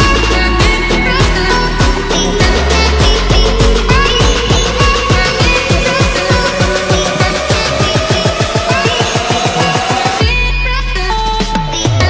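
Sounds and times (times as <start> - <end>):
deep kick-drum hits: 0.0 - 9.3.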